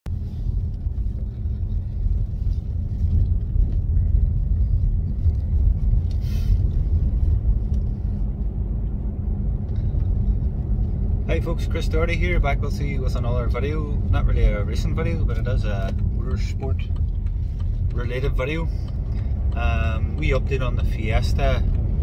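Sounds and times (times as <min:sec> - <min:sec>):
car interior road rumble: 0:00.0 - 0:22.0
brief hiss: 0:06.1 - 0:06.6.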